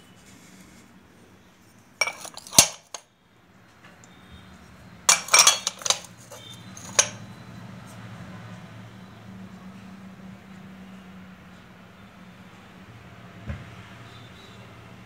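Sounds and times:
crockery bowls clinking: 0:02.0 - 0:03.0, 0:05.1 - 0:07.2.

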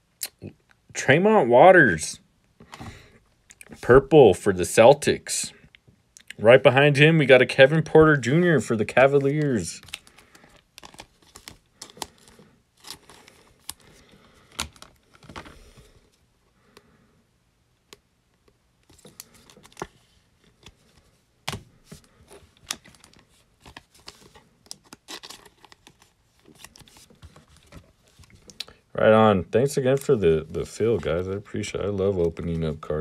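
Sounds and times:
plastic sleeves crinkling: 0:06.7 - 0:16.0, 0:18.8 - 0:33.0.

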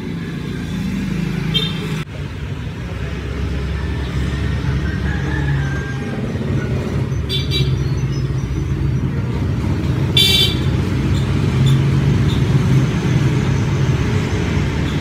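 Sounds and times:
traffic engine rumble: 0:00.0 - 0:15.0
car horn toots: 0:10.2 - 0:10.8.

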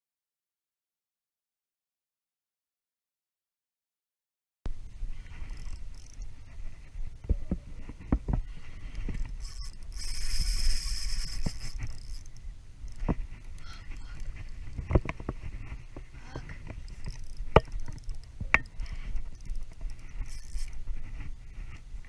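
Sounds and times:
wind rumble on microphone: 0:04.7 - 0:22.0
fishing reel being cranked: 0:05.3 - 0:06.4, 0:08.9 - 0:14.9, 0:16.8 - 0:21.1.

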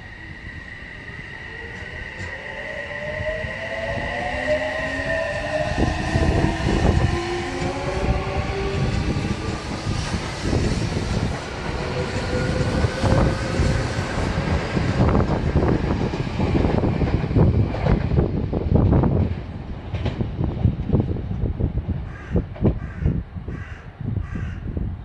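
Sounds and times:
train wheel rumble: 0:00.0 - 0:23.6.

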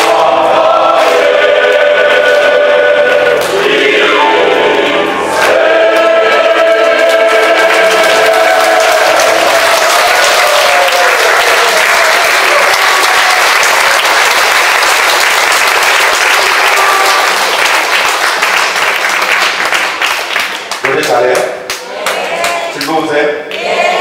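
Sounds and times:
choir holding a chord: 0:00.0 - 0:10.2
audience applauding: 0:05.4 - 0:23.0.

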